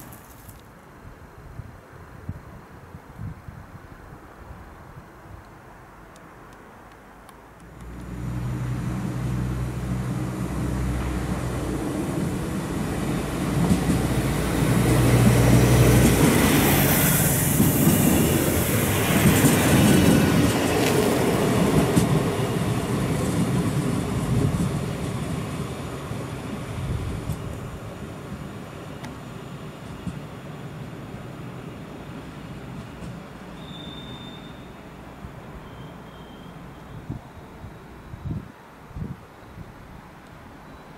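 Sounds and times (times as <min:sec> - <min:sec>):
diesel railcar passing: 0:05.7 - 0:38.3.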